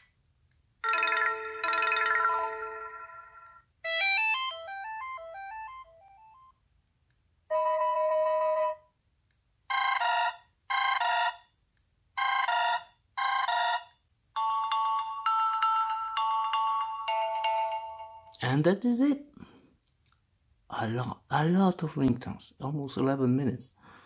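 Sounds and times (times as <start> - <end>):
chime-like ringtone notes: 0.8 - 6.5, 14.4 - 18.3.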